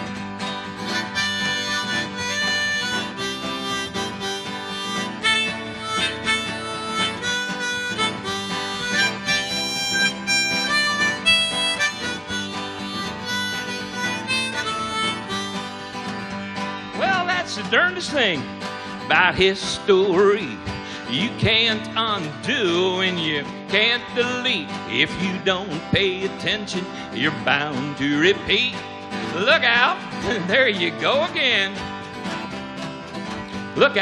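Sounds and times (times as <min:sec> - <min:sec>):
strummed acoustic guitar: 0:00.0 - 0:34.0
harmonica melody: 0:00.5 - 0:18.0.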